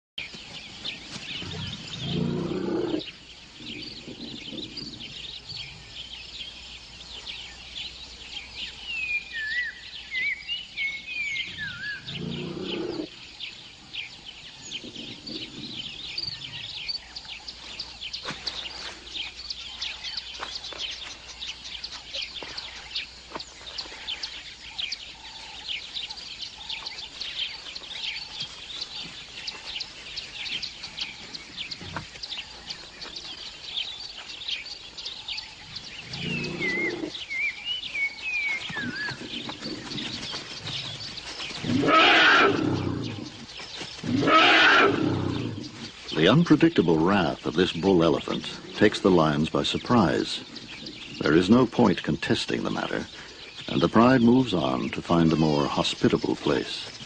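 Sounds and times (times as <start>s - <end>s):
birds chirping rapidly: 0.2s - 57.0s
whistled bird calls: 8.8s - 12.2s.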